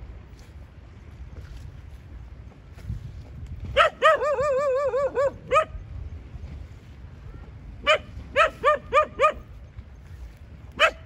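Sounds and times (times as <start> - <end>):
dog barking: 3.8 - 5.7, 7.8 - 9.5, 10.8 - 11.0.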